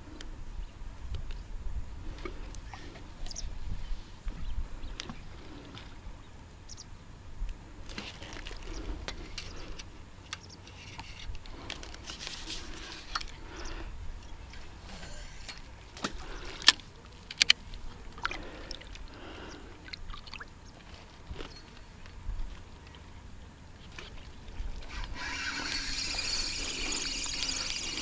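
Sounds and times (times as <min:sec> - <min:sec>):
wind rumble on microphone: 0:00.0 - 0:10.1
fishing tackle clicks and knocks: 0:15.6 - 0:17.8.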